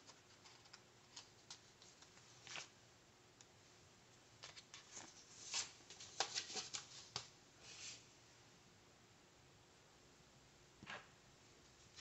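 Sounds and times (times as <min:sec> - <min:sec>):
paper stickers rustling: 0:00.0 - 0:02.7.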